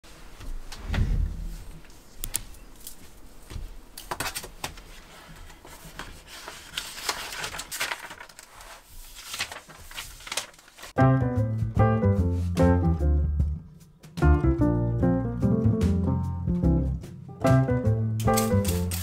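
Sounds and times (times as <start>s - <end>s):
paper pages turning: 4.0s - 11.0s, 18.2s - 19.0s.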